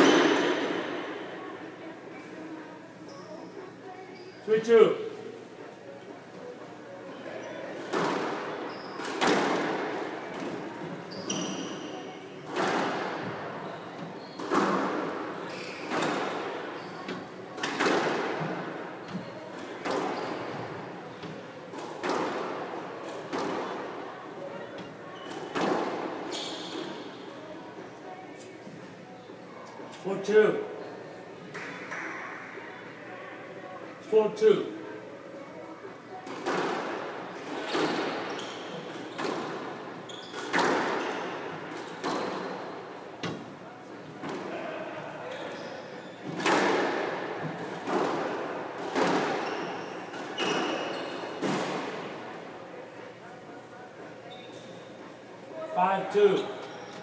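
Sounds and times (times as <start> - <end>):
squash ball hitting rackets and walls: 0.0 - 1.2, 7.8 - 11.8, 12.4 - 23.9, 25.2 - 27.2, 36.2 - 43.5, 46.2 - 52.1.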